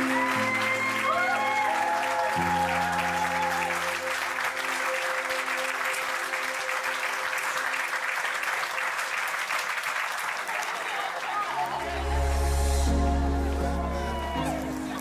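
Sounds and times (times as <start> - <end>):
guests clapping: 0.0 - 15.0
background music held chords: 11.8 - 15.0.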